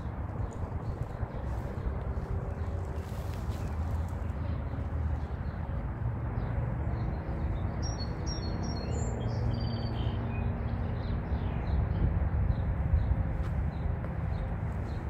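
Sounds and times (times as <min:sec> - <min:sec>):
steady low rumble: 0:00.0 - 0:08.3
small birds chirping: 0:06.4 - 0:15.0.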